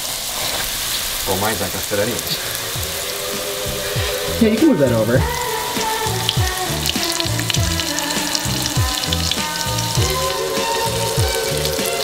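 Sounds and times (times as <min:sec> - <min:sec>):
chicken frying in a pan: 0:00.0 - 0:12.0
background music with a beat: 0:02.6 - 0:12.0.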